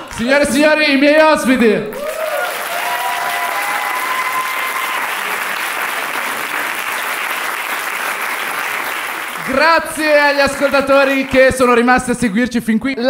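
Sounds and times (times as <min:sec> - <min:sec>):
audience applauding: 0:01.9 - 0:11.9.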